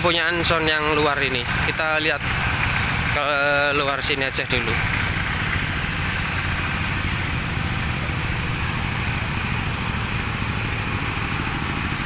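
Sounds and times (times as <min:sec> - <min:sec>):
diesel generator running: 0:00.0 - 0:12.0.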